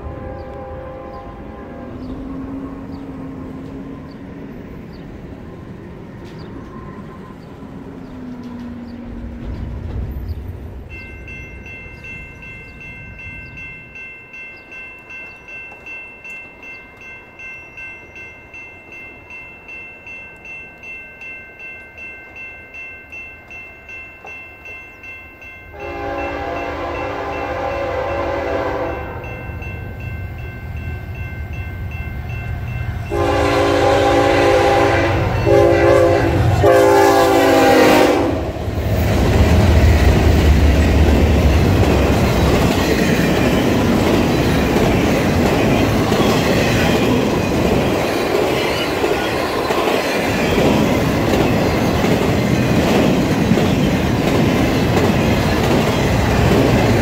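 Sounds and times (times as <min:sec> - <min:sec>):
locomotive horn blasts: 0:00.0 - 0:02.3, 0:25.7 - 0:29.4, 0:33.0 - 0:38.6
train engines rumbling: 0:00.0 - 0:57.0
train wheels clattering: 0:07.5 - 0:13.6, 0:32.9 - 0:57.0
pulsing ringing bell: 0:10.9 - 0:34.2.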